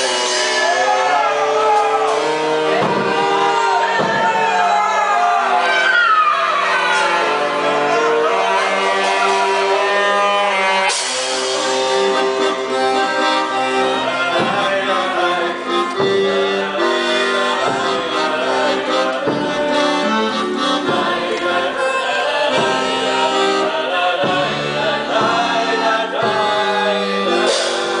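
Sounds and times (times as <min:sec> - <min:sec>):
drum strikes: 0:00.0 - 0:05.3, 0:13.4 - 0:16.5, 0:17.5 - 0:28.0
live band music: 0:00.0 - 0:28.0
voices singing along: 0:00.0 - 0:28.0.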